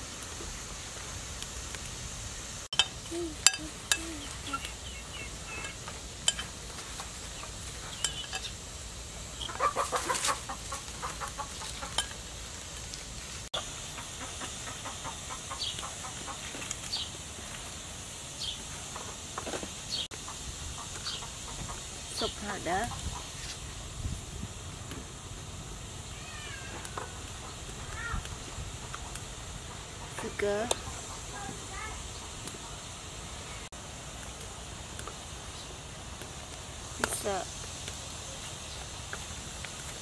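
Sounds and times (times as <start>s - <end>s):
steady hiss: 0.0s - 40.0s
chickens clucking: 2.8s - 8.6s, 9.4s - 12.4s, 13.5s - 17.0s, 18.8s - 23.7s, 26.7s - 33.0s.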